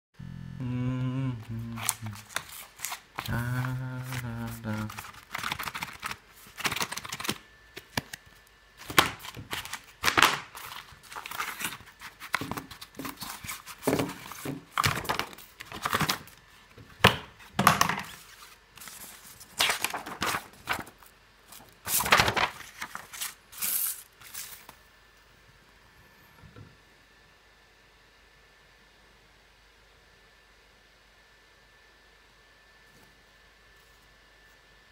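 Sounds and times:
paper sheets rustling: 1.8 - 8.2, 8.8 - 16.4, 17.8 - 24.8.

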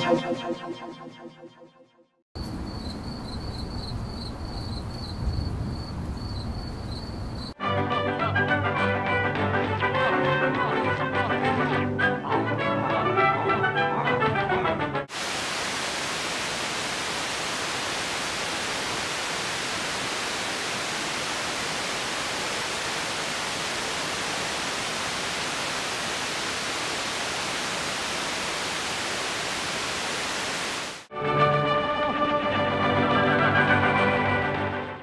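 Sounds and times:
static hiss: 15.1 - 31.1.

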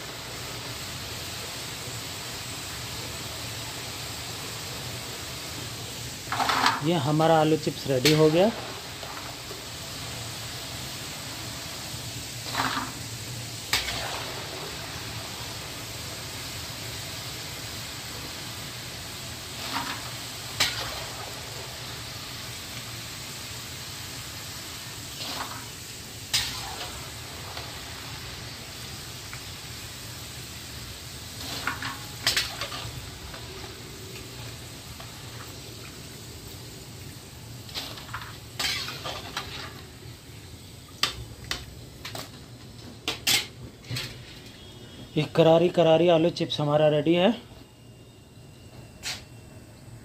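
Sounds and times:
fries sizzling in hot oil: 0.0 - 50.0
metal skimmer scraping pan: 37.7 - 39.9.

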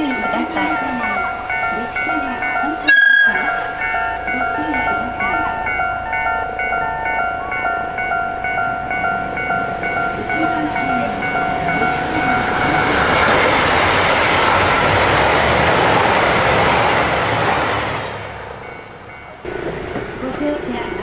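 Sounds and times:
electronic warning chime: 0.0 - 13.4
diesel train passing at speed: 0.0 - 21.0.

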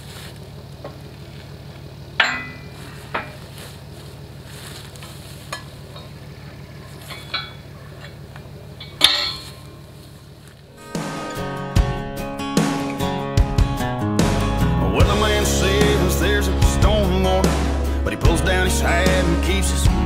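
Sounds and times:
low engine hum: 0.0 - 20.0
metallic clanks on steel harrow: 1.6 - 3.9, 4.9 - 10.4.

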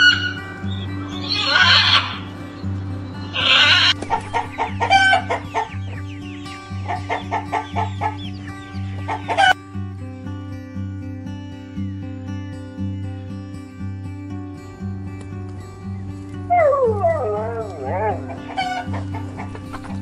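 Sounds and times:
chicken squawks: 0.0 - 2.3, 3.2 - 9.6, 16.5 - 20.0
chickens clucking: 0.0 - 9.6, 16.5 - 20.0
background music: 0.0 - 20.0.

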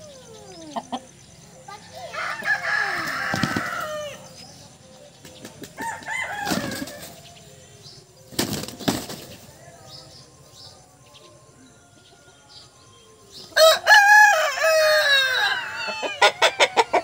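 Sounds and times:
wings flapping: 3.0 - 4.0, 5.2 - 7.2, 8.3 - 9.5
rooster crowing: 5.8 - 7.0, 13.6 - 17.0.

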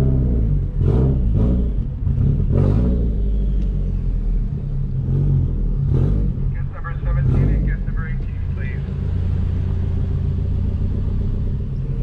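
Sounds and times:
car engine rumbling: 0.0 - 12.0.

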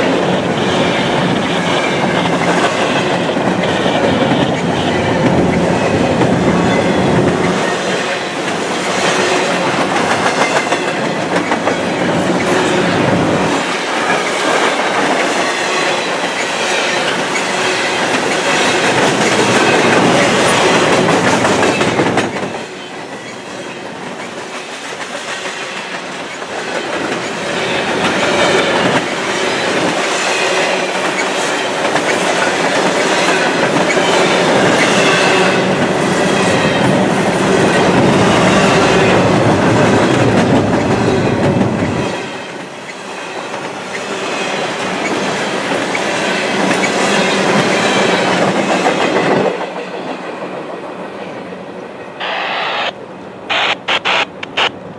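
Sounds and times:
freight train rumbling and rattling: 0.0 - 54.9
wheels clacking over rail joints: 0.9 - 22.6.

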